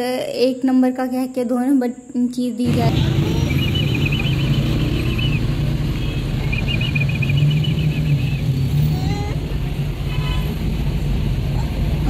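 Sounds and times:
car engine and road noise: 0:02.6 - 0:12.0
rapid high chirping trill: 0:02.8 - 0:08.7.

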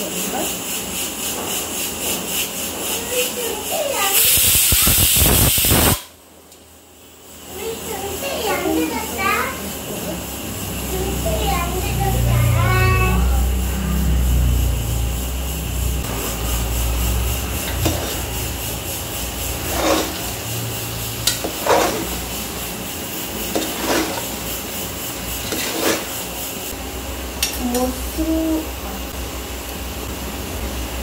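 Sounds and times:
steady low hum: 0:06.2 - 0:31.0
metal spoon scraping cooker: 0:17.5 - 0:22.7, 0:23.3 - 0:26.3.

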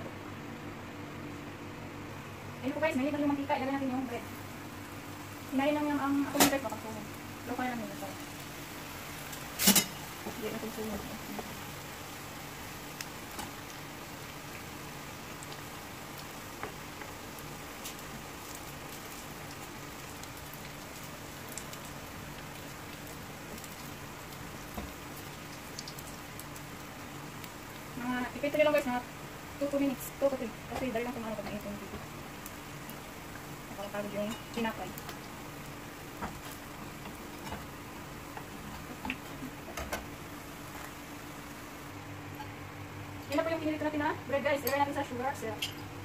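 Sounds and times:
hot oil sizzling in a pan: 0:02.1 - 0:46.0
metal spoon clicking on pan: 0:44.6 - 0:44.9.

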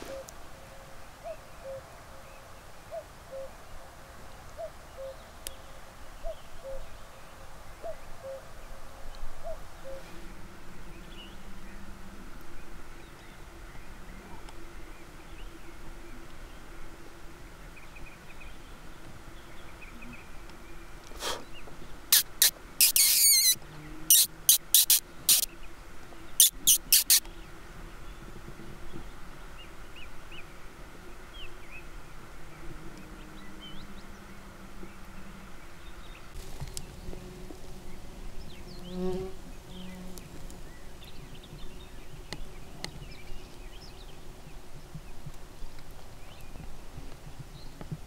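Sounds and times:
mosquitoes whining: 0:22.1 - 0:25.5, 0:26.4 - 0:27.2.

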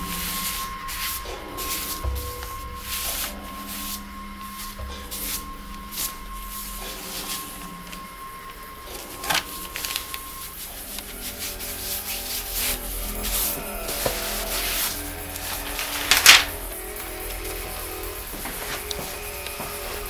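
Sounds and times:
hand rubbing ink on plate: 0:08.9 - 0:20.0.

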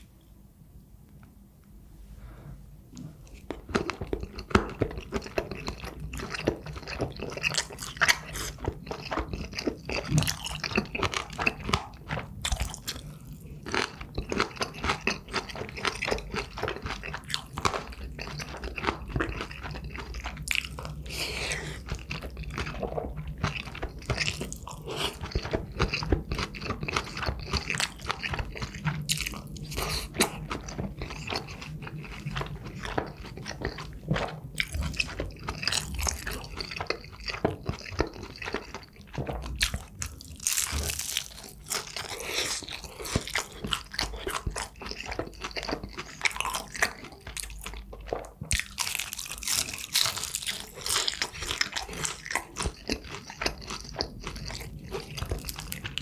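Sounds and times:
faint low hum: 0:00.0 - 0:56.0
person chewing food: 0:02.9 - 0:56.0.

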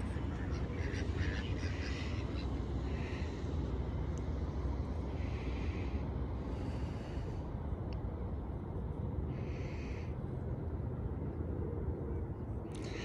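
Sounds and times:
ducks calling: 0:00.0 - 0:03.3
low outdoor rumble: 0:00.0 - 0:13.0.

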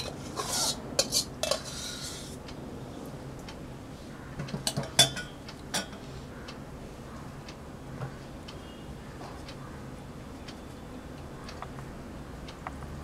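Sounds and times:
utensils scraping steel bowl: 0:00.0 - 0:02.4.

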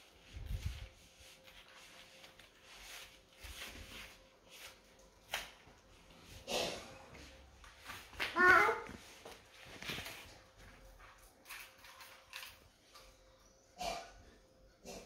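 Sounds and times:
rustling and handling noises: 0:00.0 - 0:13.4.

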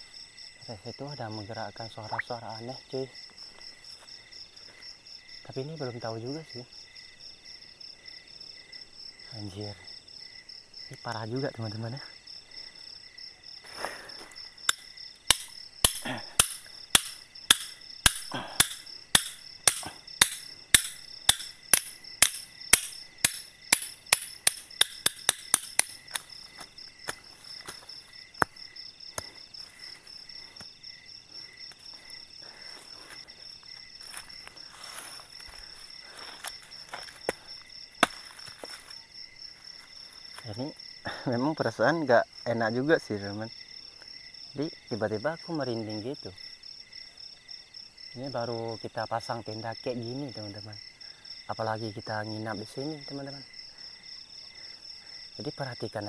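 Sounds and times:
insects trilling: 0:00.0 - 0:56.0
tent pegs being hammered: 0:14.7 - 0:26.3, 0:38.0 - 0:38.4.

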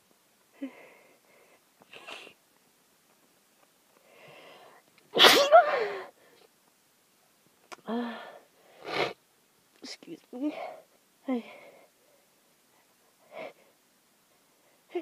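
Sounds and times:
person sneezing: 0:05.2 - 0:06.0.

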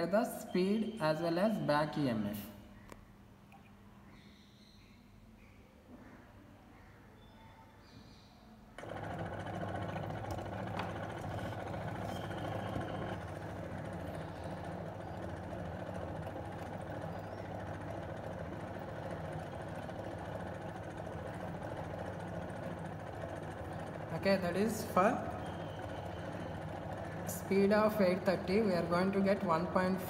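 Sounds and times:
electric motor humming: 0:08.8 - 0:28.8.

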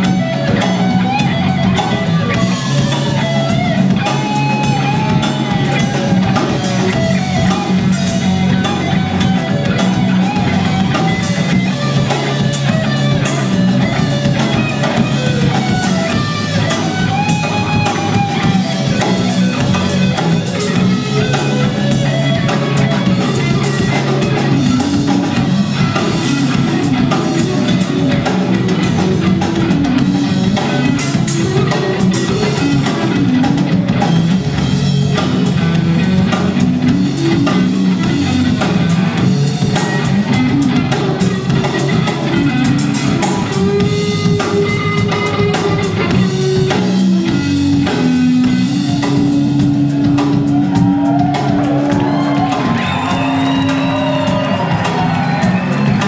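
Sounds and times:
blues band playing: 0:00.0 - 0:56.0
electric guitar lead: 0:00.0 - 0:56.0.

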